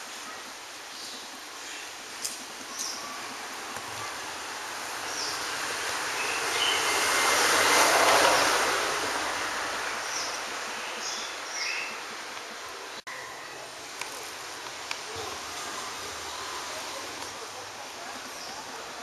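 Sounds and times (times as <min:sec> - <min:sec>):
vehicle passing by: 0:04.8 - 0:10.8.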